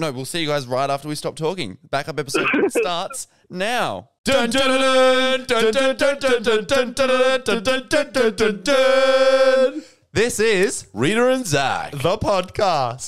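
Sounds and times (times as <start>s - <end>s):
person singing a cappella: 4.3s - 10.0s.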